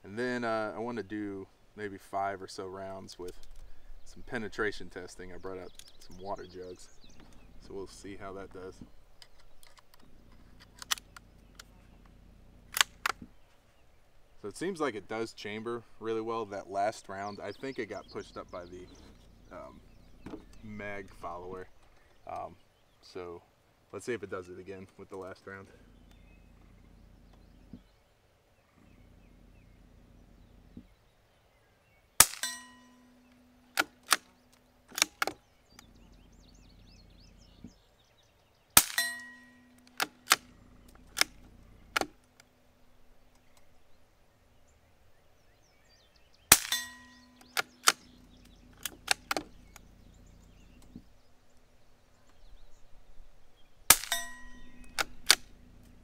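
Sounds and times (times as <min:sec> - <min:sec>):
rifle bolt clicks: 0:03.2 - 0:03.7, 0:09.2 - 0:11.7, 0:12.7 - 0:13.3, 0:33.7 - 0:35.9, 0:38.8 - 0:42.5, 0:46.5 - 0:49.9, 0:53.9 - 0:55.5
rifle shots: 0:32.2 - 0:32.8, 0:38.8 - 0:42.2, 0:46.5 - 0:48.2, 0:53.9 - 0:55.6.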